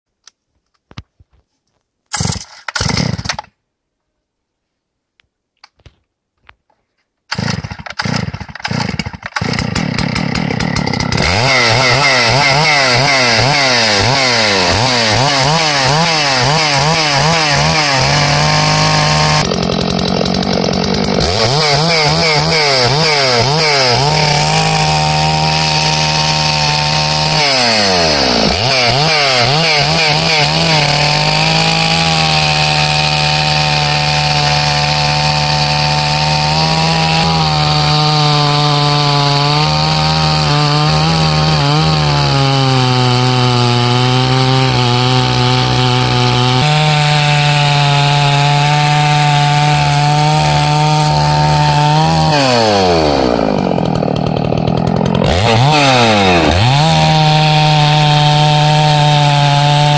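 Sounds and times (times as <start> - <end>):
chainsaw engine revving: 2.1 - 3.5, 7.3 - 59.9
chainsaw starter pulls: 2.1 - 3.5, 7.3 - 39.1, 47.0 - 58.2
chainsaw cutting log: 2.1 - 3.6, 7.3 - 59.9.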